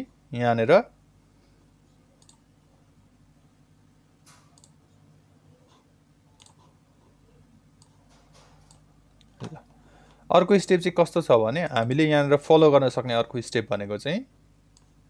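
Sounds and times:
low electrical hum: 0.0s - 15.0s
computer mouse clicks: 2.2s - 2.4s, 4.2s - 4.8s, 6.4s - 6.7s, 7.8s - 9.3s.

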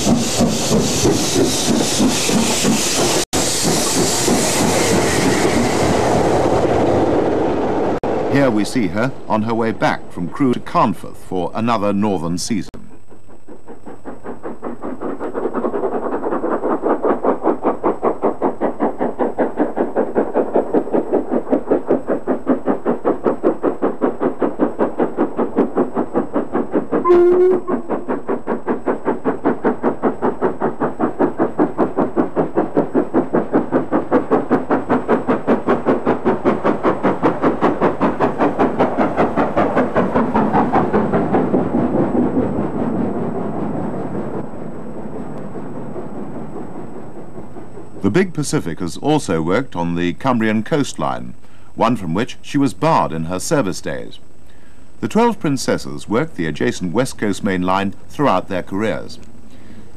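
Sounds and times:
steam locomotive exhaust beat: 0.0s - 59.9s
steam whistle: 27.0s - 27.9s.

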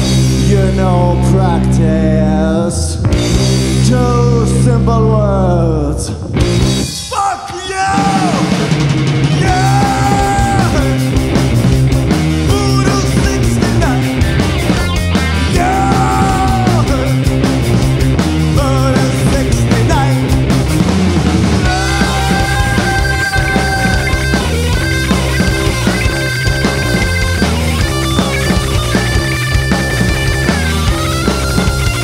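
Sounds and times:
drum kit: 0.0s - 5.2s, 6.1s - 32.0s
electric bass: 0.0s - 7.0s, 8.0s - 32.0s
electric guitar long held notes: 7.9s - 32.0s.

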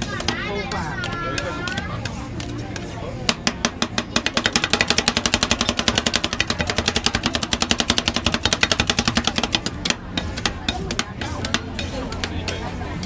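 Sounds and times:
metal spatula chopping on steel plate: 0.0s - 13.0s.

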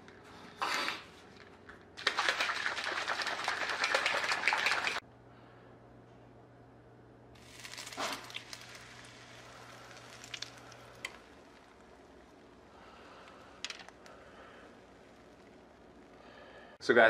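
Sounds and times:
eggs pouring into pan: 2.0s - 5.0s, 7.4s - 16.4s
eggs sizzling in frying pan: 7.4s - 16.4s.

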